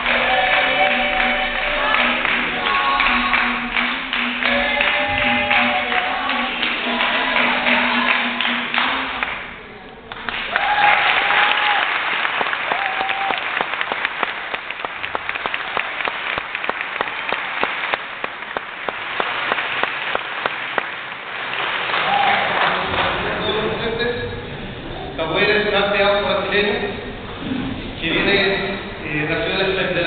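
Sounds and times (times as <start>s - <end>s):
hand-clapping: 0.0s - 9.5s, 10.1s - 23.2s
berimbau music: 0.0s - 9.7s
audience applause: 10.1s - 23.4s
audience cheers: 10.4s - 13.8s, 21.9s - 22.7s.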